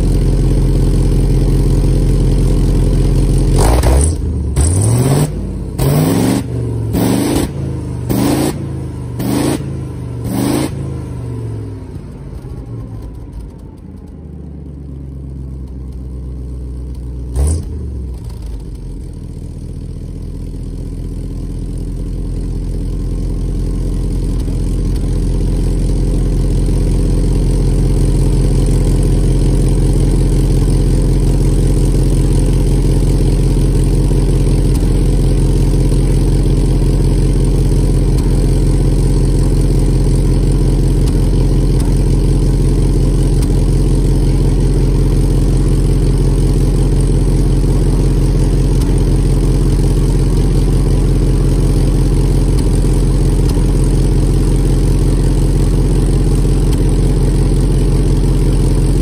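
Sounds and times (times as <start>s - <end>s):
engine exhaust revving: 0.0s - 14.8s, 17.2s - 19.2s, 23.3s - 59.0s
sharp exhaust pop: 27.7s - 59.0s.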